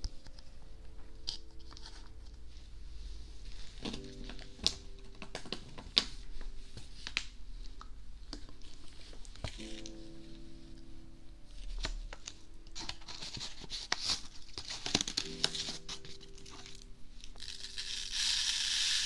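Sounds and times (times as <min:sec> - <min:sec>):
plastic packet crinkling: 0:11.8 - 0:19.0.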